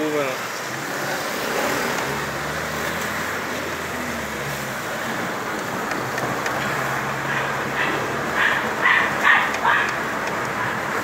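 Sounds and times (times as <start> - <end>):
car engine hum: 0.0 - 11.0
tyre road noise: 0.0 - 11.0.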